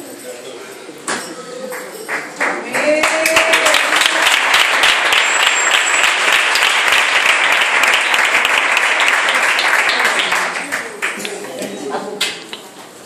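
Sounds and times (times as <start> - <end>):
crowd applauding: 1.7 - 11.6.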